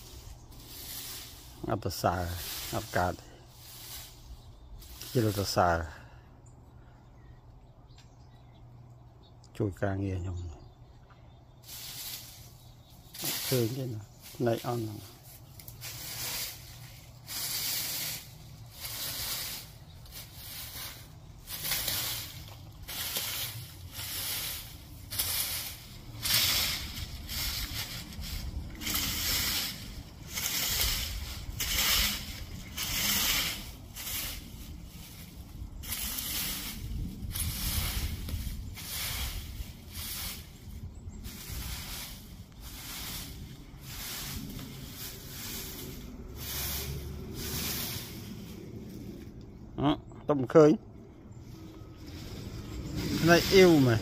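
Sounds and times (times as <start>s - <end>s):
rake scraping through dry leaves: 0.0s - 5.9s, 11.6s - 49.4s, 51.4s - 54.0s.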